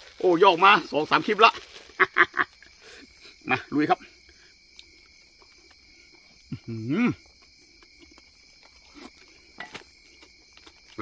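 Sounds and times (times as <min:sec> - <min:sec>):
crickets chirring: 0:00.0 - 0:11.0.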